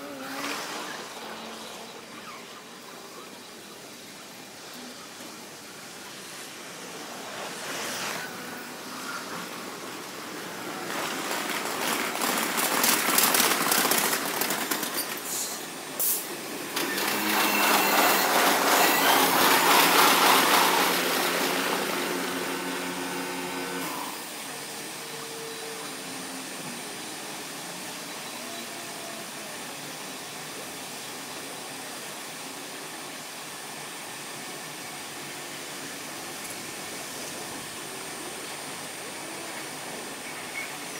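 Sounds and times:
steady train tones: 0:00.0 - 0:26.5
electric train running with rattling: 0:02.7 - 0:40.9.

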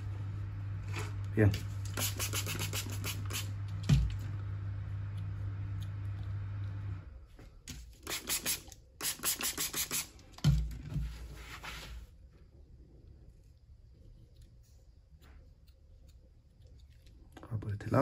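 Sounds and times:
steady low hum: 0:00.0 - 0:08.1, 0:09.7 - 0:18.0.

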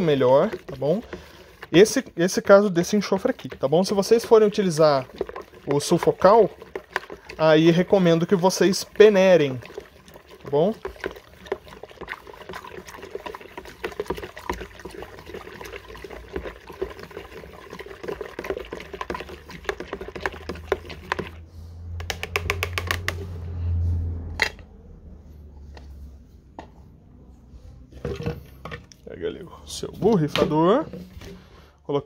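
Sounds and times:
stirrer scraping plastic bucket: 0:00.0 - 0:23.4, 0:27.9 - 0:31.7
liquid swishing: 0:00.0 - 0:24.2
quick taps: 0:22.0 - 0:23.2.

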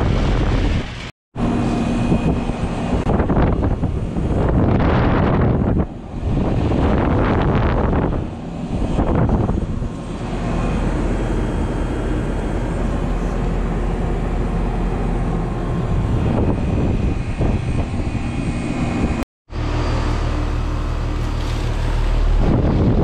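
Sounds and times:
wind buffeting microphone: 0:00.0 - 0:19.2, 0:21.7 - 0:23.0
compressor hum: 0:00.0 - 0:23.0
fan rushing: 0:00.0 - 0:23.0.

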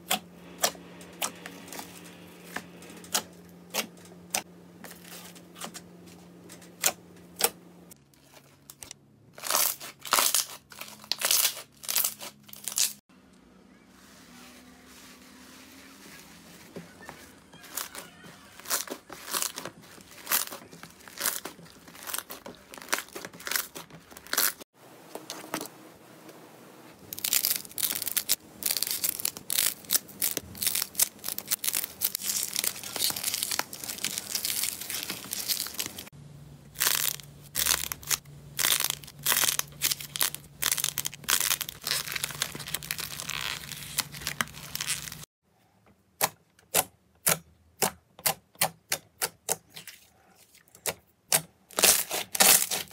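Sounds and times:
slime crackling and popping: 0:27.1 - 0:36.1, 0:36.7 - 0:45.2.

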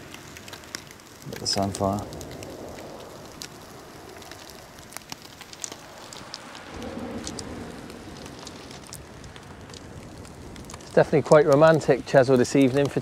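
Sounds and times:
crackles and pops: 0:00.0 - 0:13.0
fish sizzling on a barbecue: 0:00.0 - 0:13.0
soft low rush: 0:01.4 - 0:10.8.

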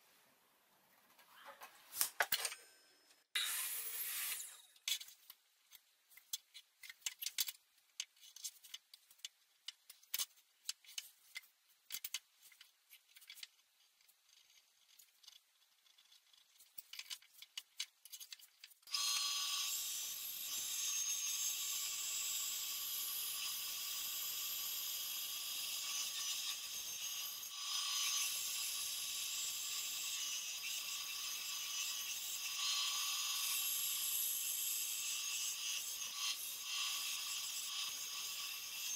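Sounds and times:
band saw cutting plywood: 0:03.4 - 0:04.8.

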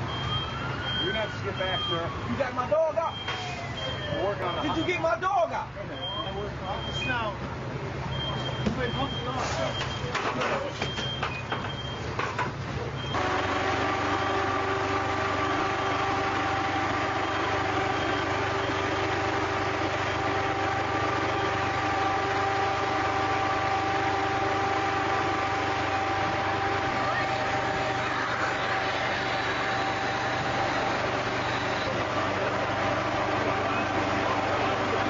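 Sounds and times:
engine idling: 0:13.2 - 0:35.0.

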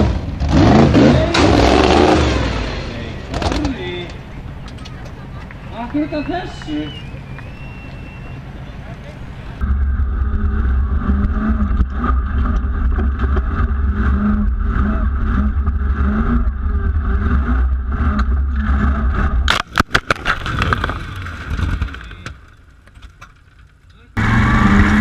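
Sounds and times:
engine revving hard: 0:00.0 - 0:03.6, 0:10.5 - 0:19.5, 0:24.2 - 0:25.0.

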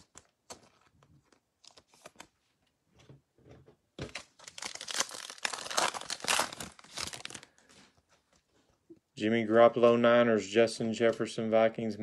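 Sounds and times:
foil wrapper tearing and crinkling: 0:04.4 - 0:07.5.

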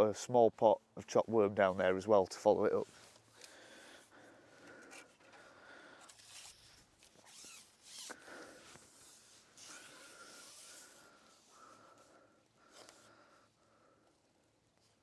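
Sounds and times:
fishing pole rustling and scraping: 0:02.7 - 0:03.5, 0:04.8 - 0:05.4, 0:06.0 - 0:11.5.

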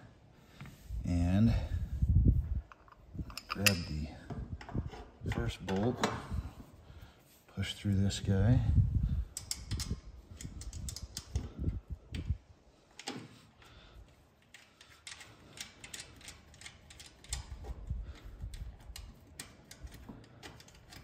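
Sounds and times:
small metallic clicks and taps: 0:09.3 - 0:11.5.

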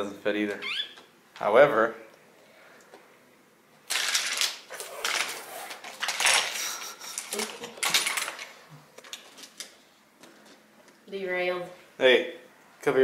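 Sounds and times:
hard toys clattering: 0:03.9 - 0:09.8.

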